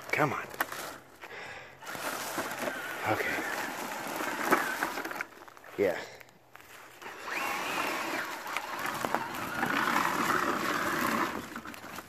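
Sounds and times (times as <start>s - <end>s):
electric motor whining: 1.8s - 5.4s, 7.0s - 12.0s.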